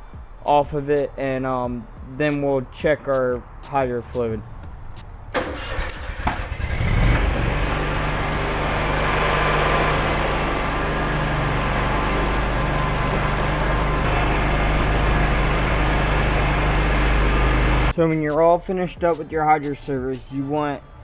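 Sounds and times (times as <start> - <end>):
mower engine running: 5.4 - 17.9.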